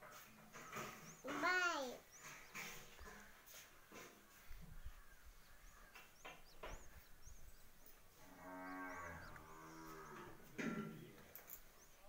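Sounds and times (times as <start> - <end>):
cow mooing: 8.2 - 10.4.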